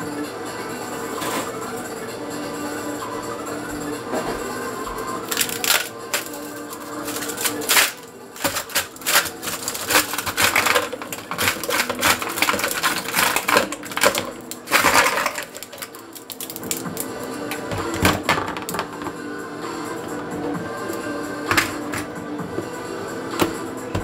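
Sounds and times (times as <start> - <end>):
ice cubes cracking in tray: 5.2 - 18.9
plastic tray crackling: 5.2 - 19.0.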